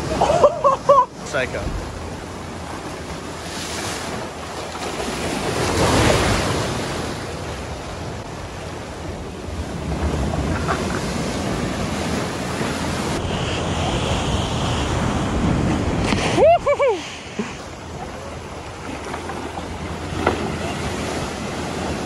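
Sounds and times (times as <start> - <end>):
waves crashing against rocks: 0.0 - 22.0
wind buffeting microphone: 5.3 - 18.8.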